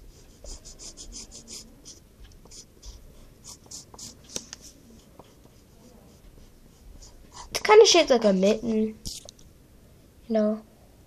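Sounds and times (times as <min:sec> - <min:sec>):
pencil ticks on paper: 0:00.0 - 0:07.7
pencil scratching on paper: 0:00.0 - 0:07.8.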